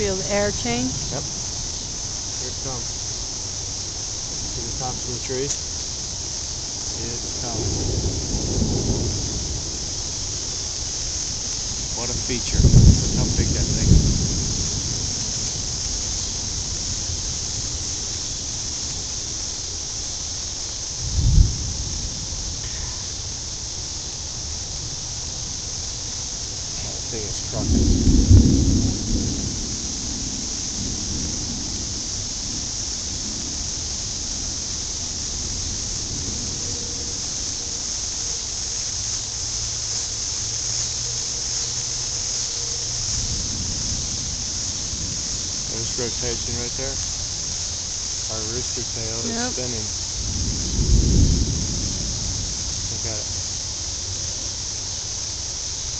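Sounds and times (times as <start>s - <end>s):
steady high hiss: 0.0s - 55.9s
wind on microphone: 6.8s - 19.1s, 21.0s - 23.8s, 26.9s - 37.5s, 48.5s - 53.4s
low rumble: 6.8s - 19.2s.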